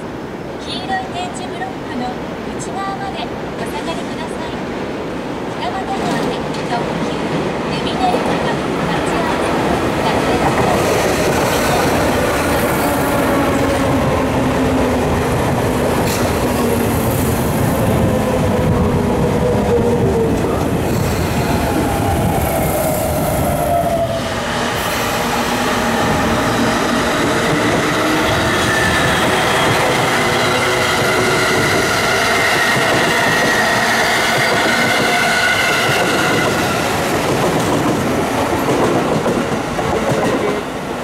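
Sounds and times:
train wheels rumbling on rail: 5.7s - 41.0s
train whining tones sliding in pitch: 16.9s - 37.1s.

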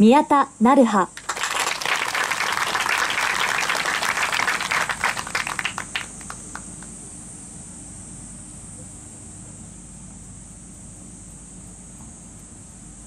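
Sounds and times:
crowd applauding: 1.2s - 6.9s.

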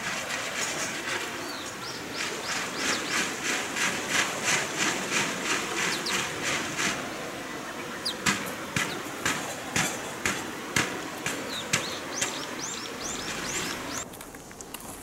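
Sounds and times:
outdoor hiss: 0.0s - 15.0s
sharp knocks: 8.2s - 14.0s.

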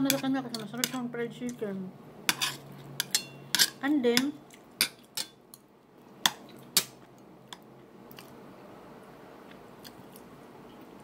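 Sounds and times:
low background hiss: 0.0s - 11.0s.

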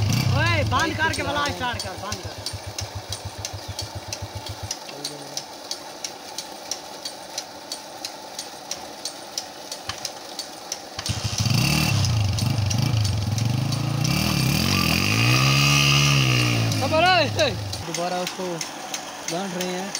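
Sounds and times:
motorcycle engine revving: 0.0s - 5.4s, 11.0s - 19.9s
light regular ticks: 0.4s - 14.6s, 16.1s - 19.9s
slow low engine pulse: 1.6s - 5.4s.

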